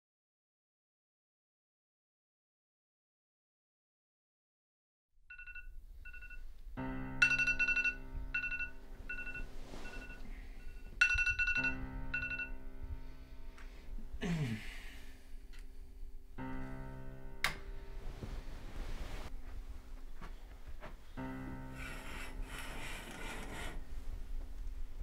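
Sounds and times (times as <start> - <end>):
phone ringtone beeps: 5.3 - 6.4, 7.2 - 12.6
low synth chords film score: 11.5 - 18.1.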